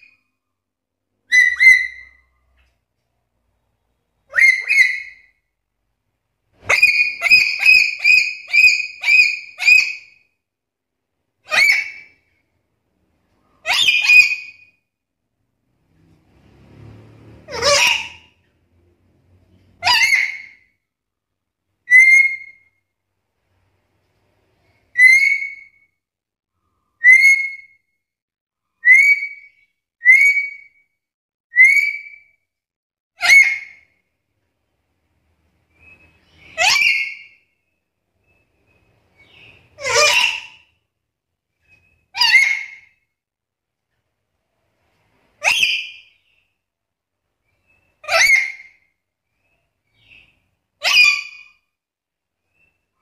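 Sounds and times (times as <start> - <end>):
bird whistling: 1.3 - 2.3, 4.3 - 5.3, 6.6 - 10.1, 21.9 - 22.7, 24.9 - 25.9, 27.0 - 27.8, 28.8 - 30.8, 31.5 - 32.3, 45.4 - 46.5
parrot high whistled calls: 1.3 - 2.3, 4.3 - 5.3, 6.6 - 10.2, 11.5 - 12.2, 13.6 - 14.7, 17.5 - 18.3, 19.8 - 20.7, 21.8 - 22.7, 24.9 - 25.9, 27.0 - 27.8, 28.8 - 30.8, 31.5 - 32.4, 33.2 - 33.8, 35.7 - 37.6, 38.2 - 40.7, 41.6 - 43.0, 45.4 - 46.4, 47.6 - 48.9, 49.9 - 51.6.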